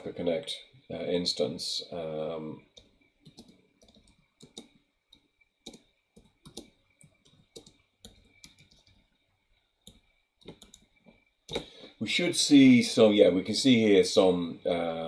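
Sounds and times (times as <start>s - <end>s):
faint keyboard typing: 2.6s - 11.8s.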